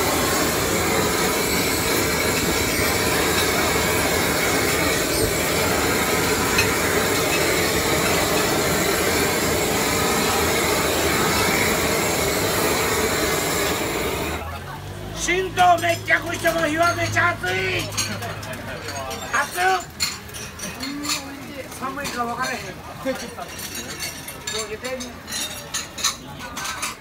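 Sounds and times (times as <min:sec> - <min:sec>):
gas blowtorch hissing: 0:00.0 - 0:14.4.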